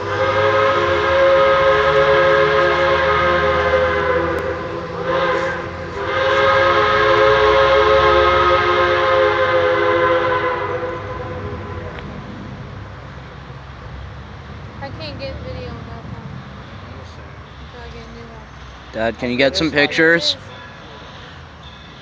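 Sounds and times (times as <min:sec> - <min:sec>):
steam locomotive whistle: 0:00.0 - 0:12.0.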